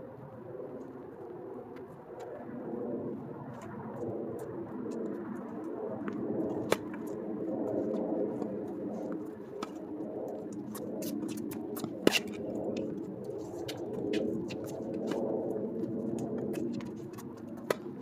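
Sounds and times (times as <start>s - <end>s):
tennis racket hitting ball: 11.0s - 12.4s.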